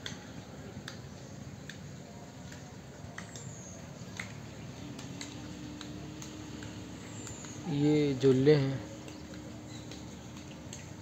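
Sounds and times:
light clicks: 0:08.8 - 0:11.0.

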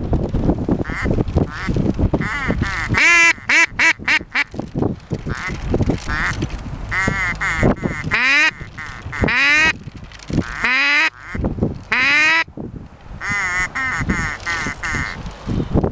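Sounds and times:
duck quacking: 0:00.8 - 0:04.5, 0:05.3 - 0:09.8, 0:10.4 - 0:12.5, 0:13.2 - 0:15.2.

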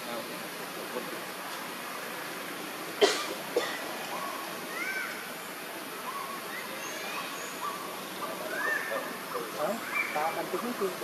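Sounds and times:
forest background hiss: 0:00.0 - 0:11.0
chirping animal calls: 0:06.1 - 0:10.8.

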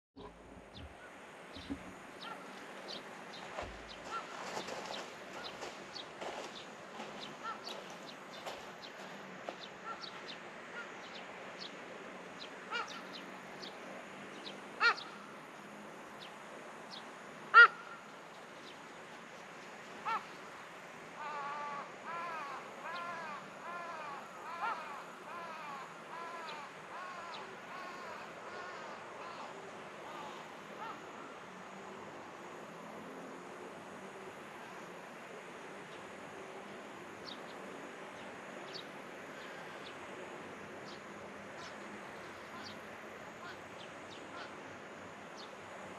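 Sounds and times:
birds chirping: 0:00.2 - 0:11.7.

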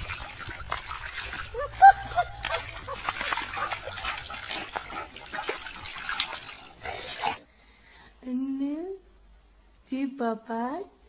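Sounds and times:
dog rolling in wet mud: 0:00.0 - 0:07.4.

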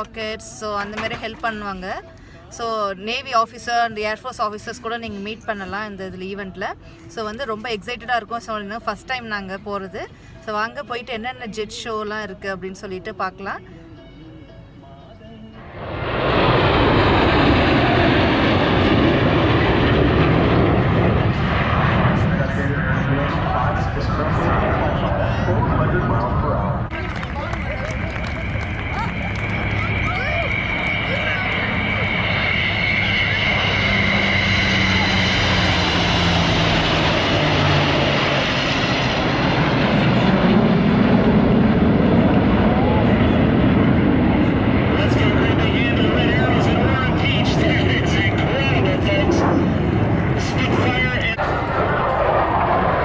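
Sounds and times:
jet engine roar: 0:15.6 - 0:53.0.

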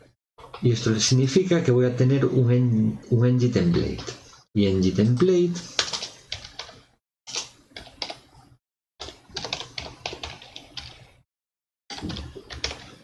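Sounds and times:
computer keyboard typing: 0:05.2 - 0:08.3, 0:09.0 - 0:11.2, 0:11.9 - 0:13.0.

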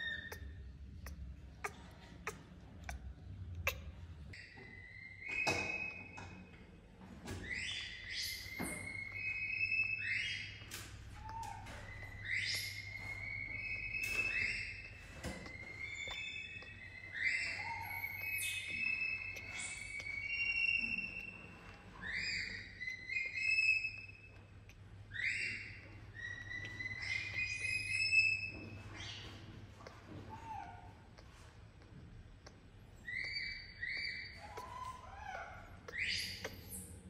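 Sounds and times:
baby monkey squealing: 0:00.0 - 0:05.9, 0:11.2 - 0:24.4, 0:25.1 - 0:29.2, 0:33.0 - 0:37.0.

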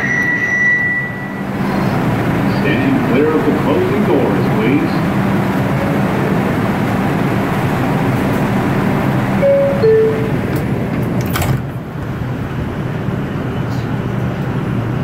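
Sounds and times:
subway car hum: 0:00.0 - 0:15.0
two-note door chime: 0:09.4 - 0:10.4.

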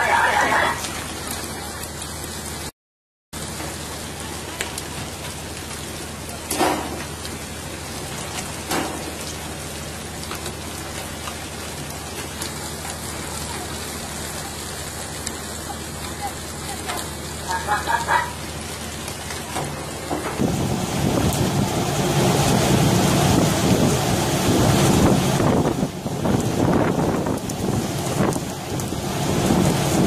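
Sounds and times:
steady hiss with faint ticks: 0:04.5 - 0:05.9.

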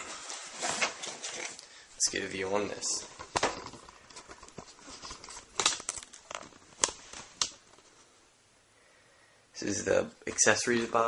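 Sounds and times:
cardboard packaging moved: 0:00.0 - 0:01.7.

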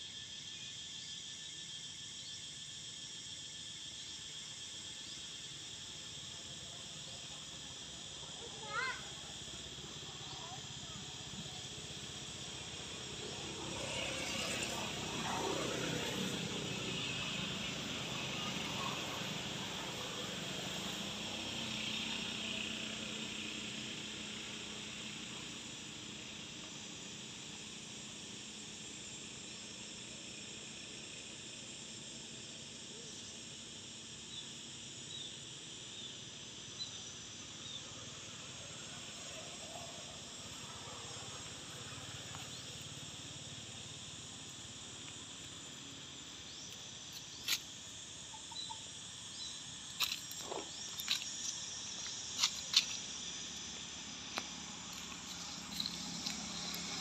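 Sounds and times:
high-pitched insect buzzing: 0:46.4 - 0:57.0.

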